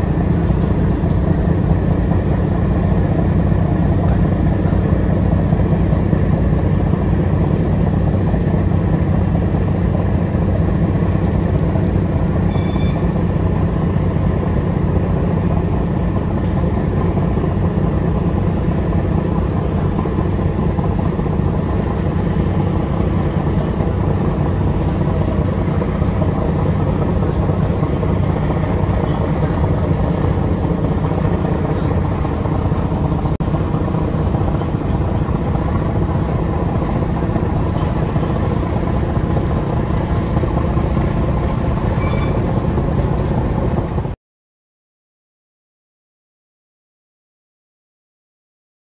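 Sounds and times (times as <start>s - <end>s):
boat diesel engine drone: 0.0s - 44.2s
water rushing along hull: 0.0s - 44.2s
faint short high chirps: 12.5s - 13.1s, 42.0s - 42.4s.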